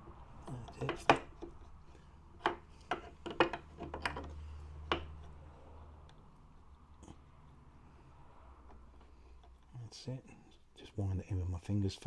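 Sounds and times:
small metal clicks and taps: 0.4 - 1.8, 2.4 - 5.4, 6.0 - 7.6.

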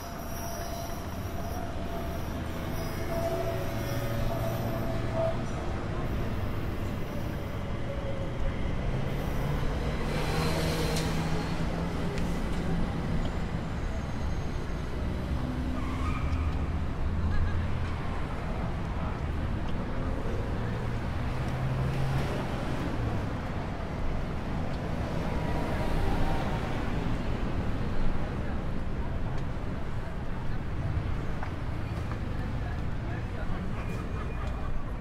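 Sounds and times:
train wheel squeal: 0.0 - 8.3, 13.2 - 16.7.

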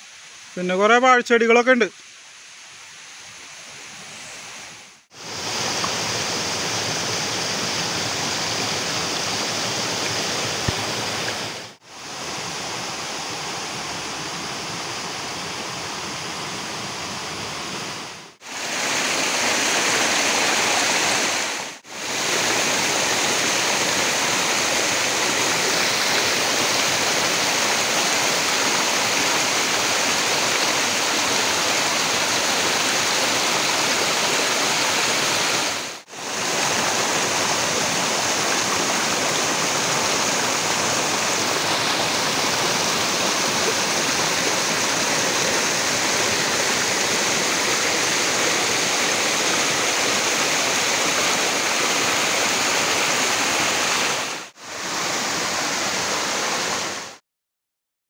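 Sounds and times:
stream rushing over rocks: 0.0 - 57.2.

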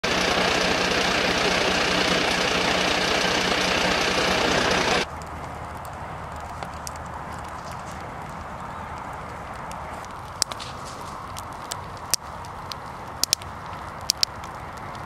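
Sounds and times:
diesel engine idling: 0.0 - 5.1
low hum: 0.0 - 5.1
faint crackles: 0.0 - 15.0.

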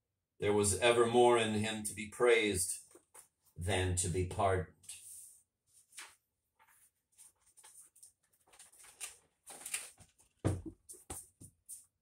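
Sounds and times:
thump: 10.4 - 10.7.

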